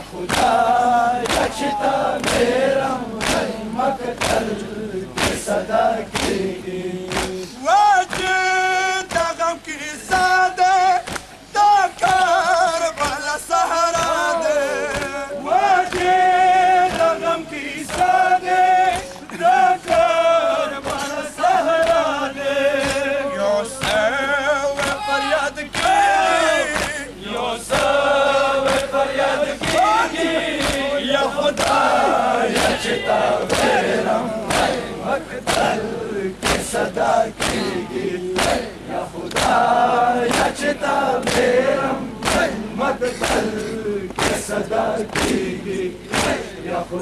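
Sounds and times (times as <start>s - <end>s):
men chanting a lament: 0.0s - 47.0s
hands slapping chests: 1.2s - 1.6s, 2.2s - 2.5s, 3.2s - 3.5s, 4.1s - 4.5s, 6.1s - 6.4s, 7.1s - 8.4s, 11.0s - 11.4s, 17.8s - 18.2s, 23.8s - 24.0s, 25.7s - 26.0s, 26.7s - 27.1s, 28.6s - 29.0s, 30.6s - 30.9s, 31.5s - 31.9s, 34.4s - 35.8s, 36.4s - 37.8s, 38.4s - 39.6s, 40.3s - 41.5s, 42.2s - 42.6s, 43.2s - 45.5s, 46.1s - 46.5s.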